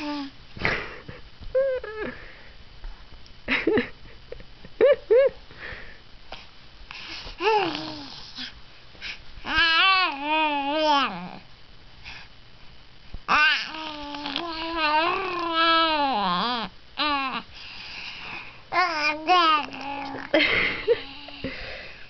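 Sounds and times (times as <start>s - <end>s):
baby cooing and babbling: 7.4s - 8.1s, 9.4s - 11.5s, 13.3s - 17.5s, 18.7s - 20.3s.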